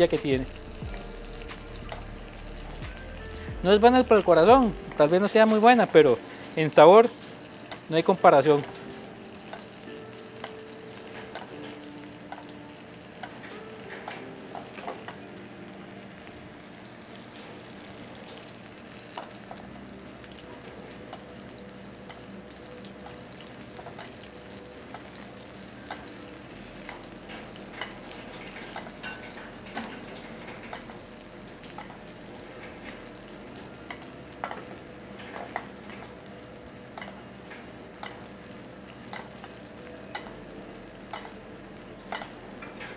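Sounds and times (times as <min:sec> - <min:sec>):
fish sizzling in butter: 0:00.0 - 0:42.9
utensil clicking against pan: 0:38.0 - 0:38.3, 0:41.1 - 0:41.4.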